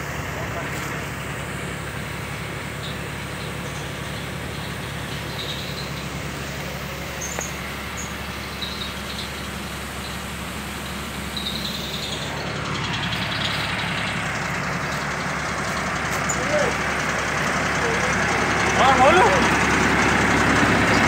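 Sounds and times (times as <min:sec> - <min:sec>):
engine and pump droning: 0:00.0 - 0:21.0
high-pressure spray hissing: 0:00.6 - 0:12.4.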